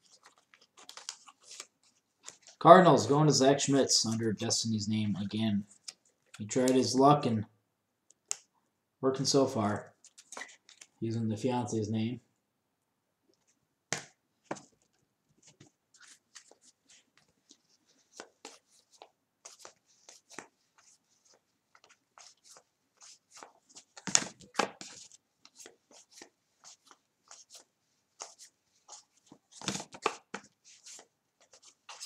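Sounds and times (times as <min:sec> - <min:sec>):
cards flicking and sliding: 0:00.3 - 0:02.5, 0:21.8 - 0:32.0.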